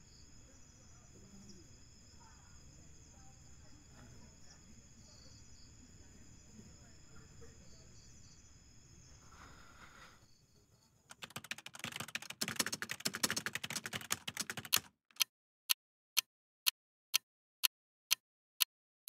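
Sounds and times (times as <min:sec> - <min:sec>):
insects chirring: 0:00.0 - 0:14.7
keyboard typing clicks: 0:11.1 - 0:15.3
sharp clicks: 0:11.1 - 0:15.3.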